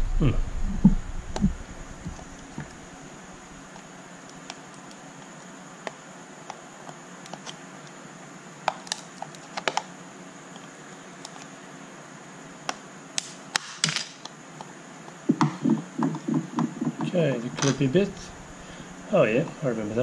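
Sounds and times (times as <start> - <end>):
plastic clicks and cracks: 3.7 - 8.0, 8.6 - 9.9, 12.7 - 14.7.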